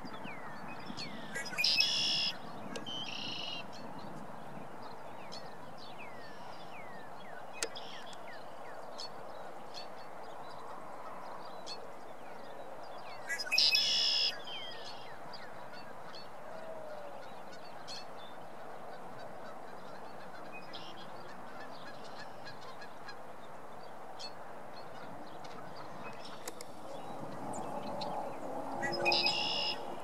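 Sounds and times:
blackbird song: 0.0s - 30.0s.

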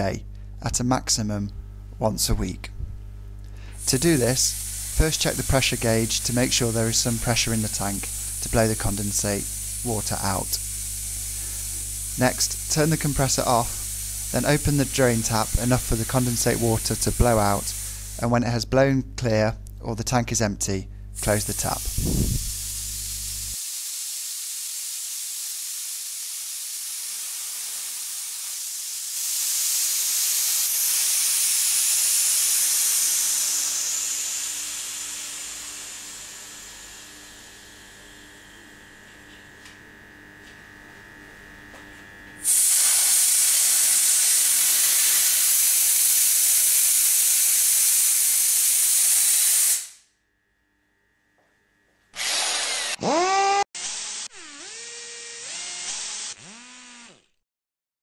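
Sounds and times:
compressed air hissing from drain: 3.5s - 18.4s, 21.2s - 37.1s, 42.4s - 50.0s.

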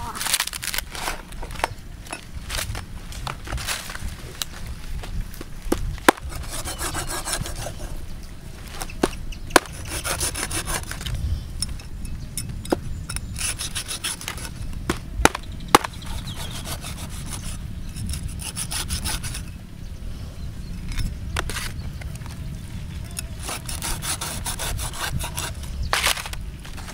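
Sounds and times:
cleaver scraping fish skin: 5.8s - 8.0s, 8.7s - 11.2s, 12.7s - 19.5s, 20.8s - 22.4s, 23.0s - 26.9s.

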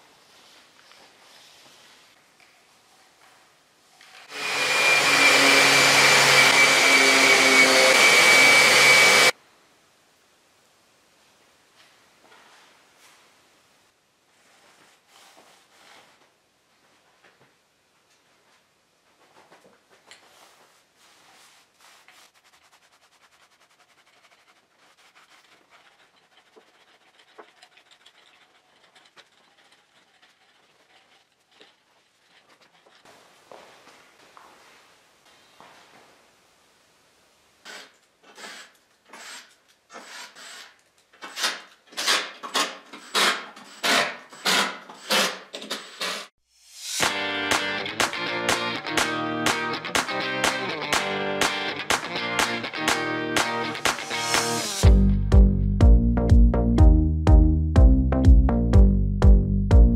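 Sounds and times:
orbital sander hissing: 4.3s - 9.3s, 46.4s - 47.3s
paint roller rubbing on wood: 20.3s - 33.1s.

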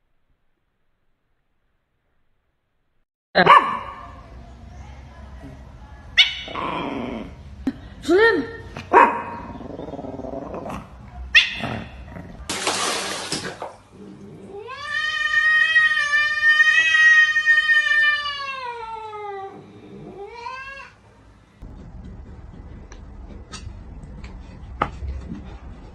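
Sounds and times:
cat yowling: 14.5s - 21.0s.

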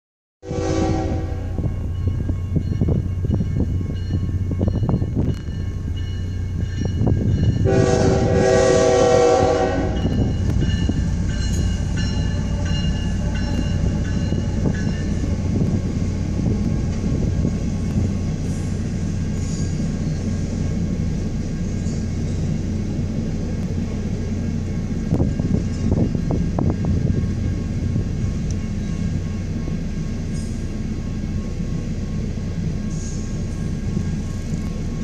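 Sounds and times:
locomotive horn: 0.4s - 1.8s, 7.6s - 15.4s
train rumble: 0.4s - 35.0s
crossing bells ringing: 0.7s - 35.0s.

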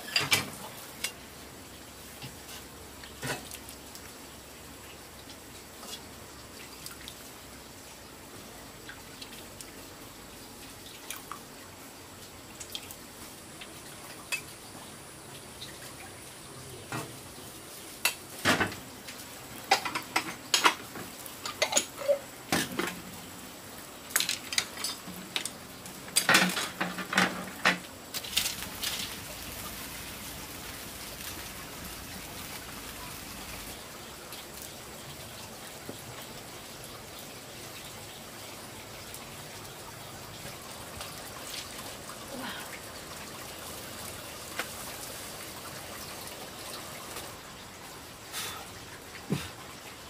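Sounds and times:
dishes and utensils clinking: 0.0s - 1.2s, 19.6s - 23.0s, 24.1s - 25.5s, 26.2s - 27.8s
steady hiss: 0.0s - 50.0s.

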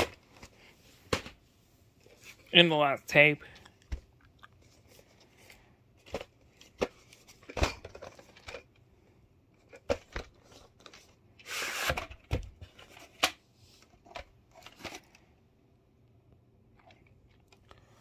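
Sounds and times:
cassette sliding out of sleeve: 11.4s - 12.2s.

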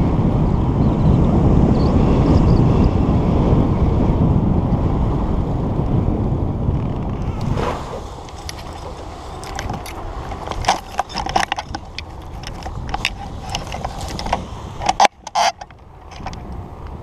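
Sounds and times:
wind rumbling on microphone: 0.0s - 17.0s
metal harness hardware clinking: 8.2s - 16.4s.

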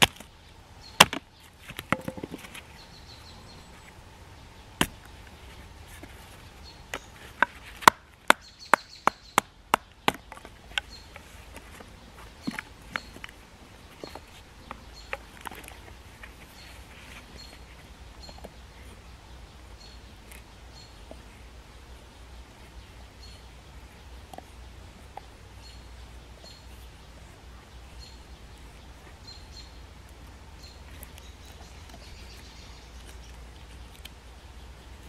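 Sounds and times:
wooden knocks and cracks: 1.0s - 2.6s.

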